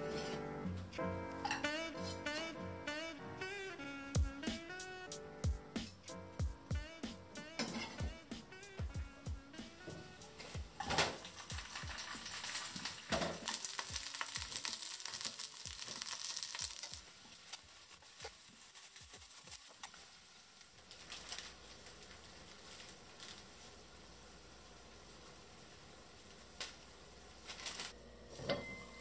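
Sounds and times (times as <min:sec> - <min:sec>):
onion sizzling in a pan: 0:06.8 - 0:29.0.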